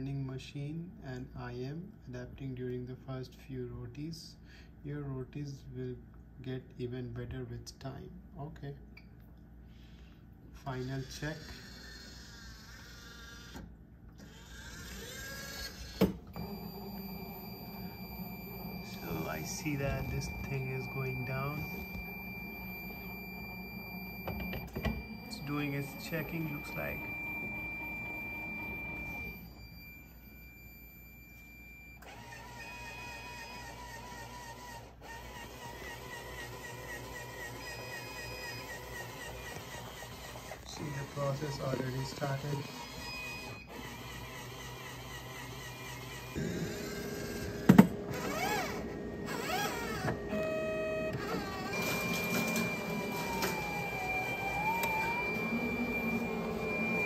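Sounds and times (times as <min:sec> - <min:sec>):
appliance motors whirring: 0:10.6 - 0:57.0
thin high whine: 0:16.3 - 0:32.1, 0:48.2 - 0:57.0
short steady tone: 0:16.4 - 0:31.9.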